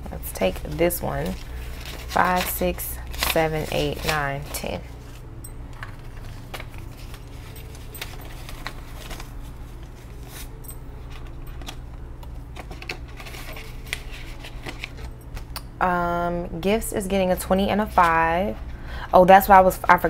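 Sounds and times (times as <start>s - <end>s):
steady low hum: 0.0s - 20.0s
banknotes rustling and flicking: 0.1s - 15.6s.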